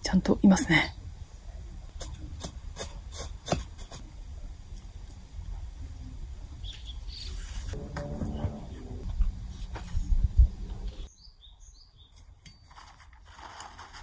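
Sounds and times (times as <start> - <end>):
rubbing and scraping handling noise: 7.3 - 10.2, 12.2 - 14.0
low steady rumble: 7.7 - 11.1.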